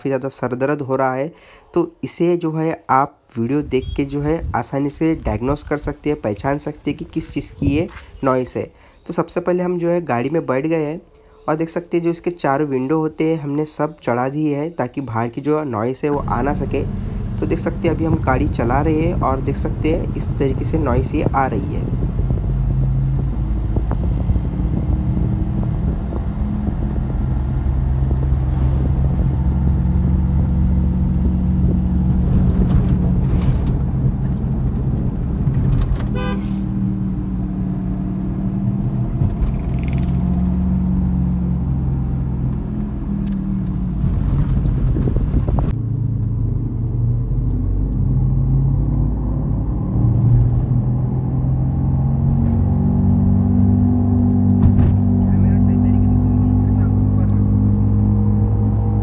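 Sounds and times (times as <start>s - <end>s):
road noise: 0.0s - 59.0s
low humming drone from wheel: 16.1s - 59.0s.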